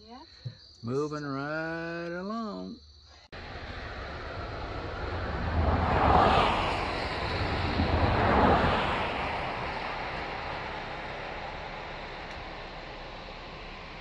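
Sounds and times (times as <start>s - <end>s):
low rumble: 3.4s - 14.0s
water rushing roar: 3.4s - 14.0s
wind on microphone: 3.5s - 10.8s.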